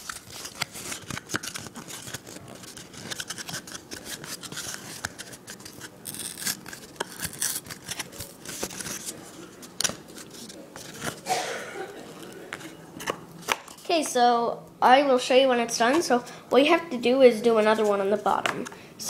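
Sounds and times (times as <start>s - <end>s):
cardboard clicks and crinkles: 0.0s - 11.2s.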